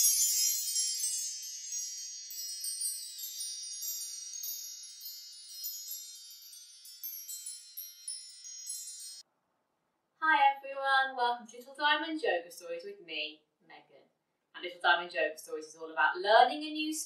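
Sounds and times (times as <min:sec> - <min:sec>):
wind chimes ringing: 0:00.0 - 0:09.2.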